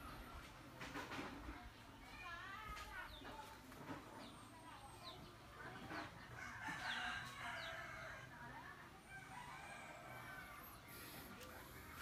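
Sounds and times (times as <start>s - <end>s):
small birds chirping: 1.5s - 8.8s
rooster crowing: 9.1s - 10.8s.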